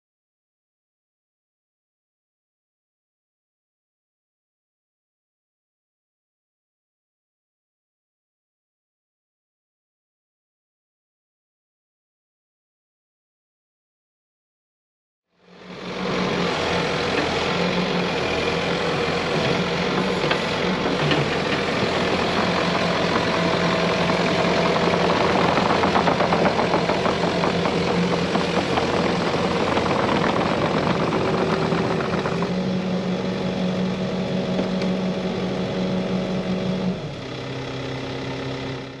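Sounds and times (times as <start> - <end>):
excavator diesel engine running: 15.4 - 39.0.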